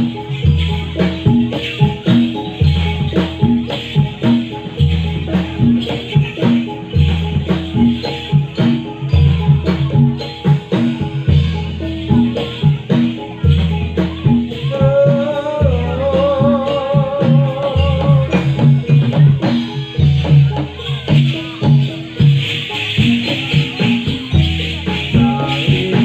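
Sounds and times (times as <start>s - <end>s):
ankle bells jingling: 0.0s - 26.0s
gamelan-style music: 0.0s - 26.0s.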